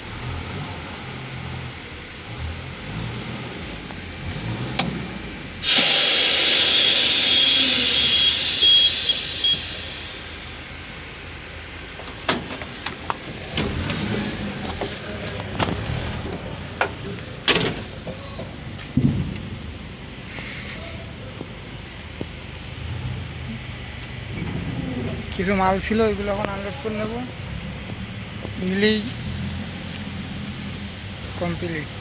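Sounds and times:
air brake hiss: 0:05.6 - 0:11.2.

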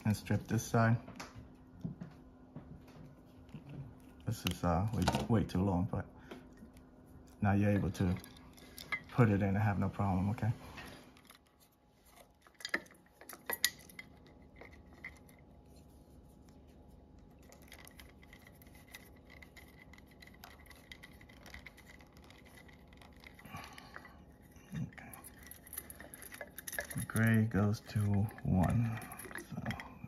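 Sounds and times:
handling wires in metal housing: 0:06.4 - 0:30.0.

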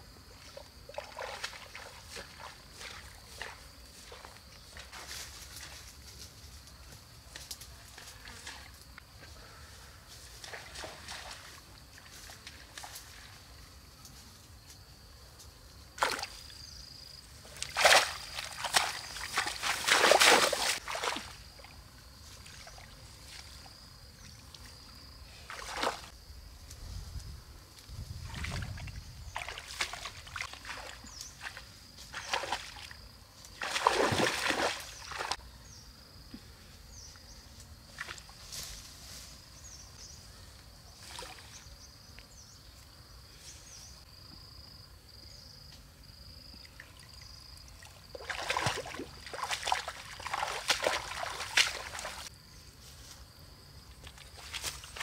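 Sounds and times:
hands splashing in muddy water: 0:17.6 - 0:21.4, 0:28.3 - 0:32.9, 0:33.6 - 0:35.4, 0:48.1 - 0:52.3.

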